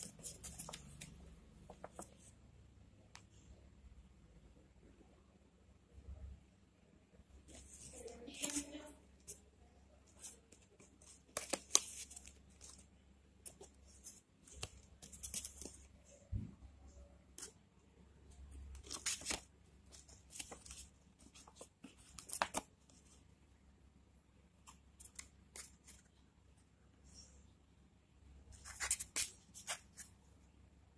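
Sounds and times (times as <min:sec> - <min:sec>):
stiff paper rustling and crinkling: 0:00.0 - 0:02.2, 0:18.8 - 0:22.7.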